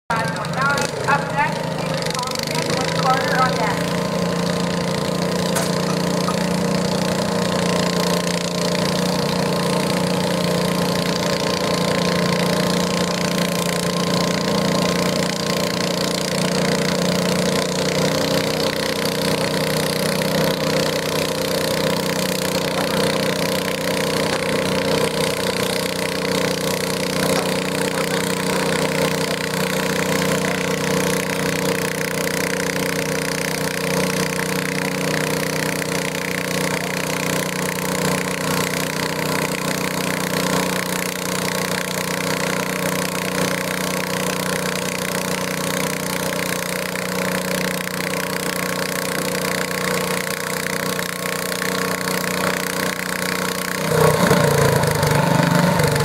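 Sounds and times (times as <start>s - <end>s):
garden tractor engine droning: 0.1s - 56.0s.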